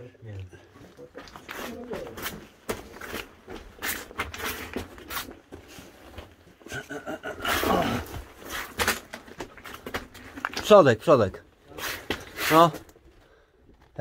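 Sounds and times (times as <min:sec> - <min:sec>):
footsteps on loose rock: 0:01.0 - 0:06.7, 0:07.8 - 0:10.9
low grunt or murmur: 0:06.7 - 0:08.3.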